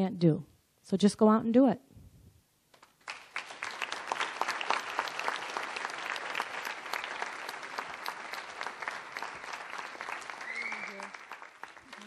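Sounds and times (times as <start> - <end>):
audience applauding: 2.8 - 12.0.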